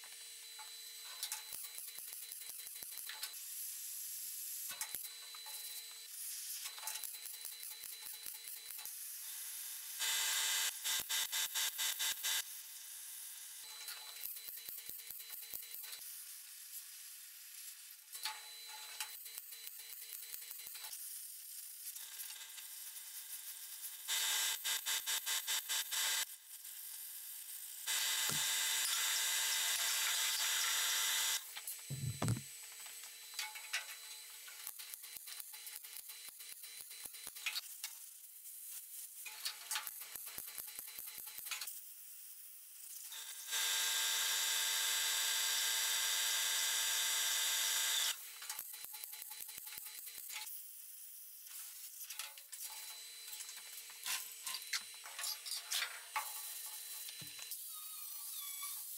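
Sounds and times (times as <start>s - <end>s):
welder buzzing in bursts: 9.8s - 12.4s, 27.8s - 32.6s, 43.1s - 48.2s.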